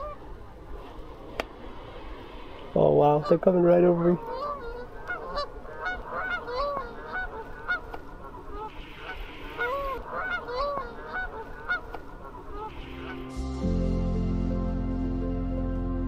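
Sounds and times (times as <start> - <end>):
geese honking overhead: 2.9 - 13.9.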